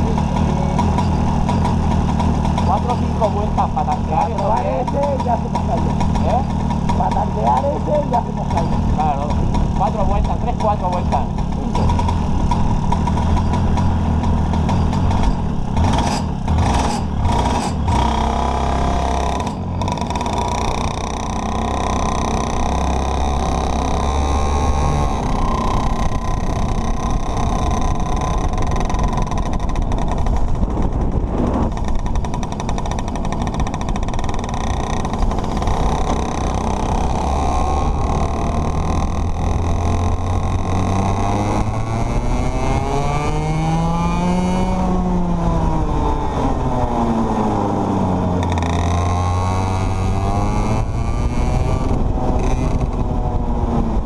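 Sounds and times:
sharp knocks: 0.0 - 30.9
go-kart engine running: 0.0 - 54.0.

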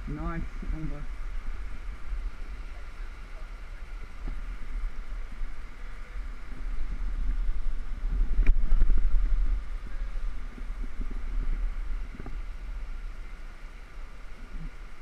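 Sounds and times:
wind buffeting microphone: 3.6 - 15.0.

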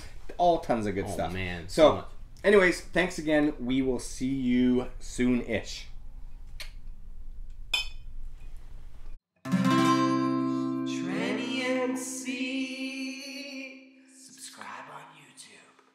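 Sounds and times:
low room hum: 0.0 - 9.2
acoustic guitar with singing: 9.5 - 14.8.

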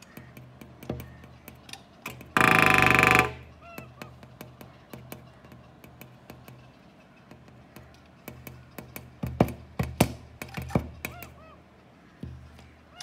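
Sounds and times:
woodpecker tapping on glass: 0.1 - 1.7.

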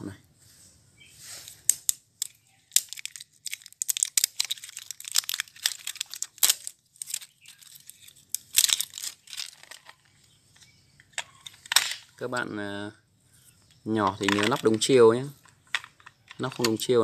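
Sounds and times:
plastic wrap crinkling and tearing: 2.2 - 10.0.

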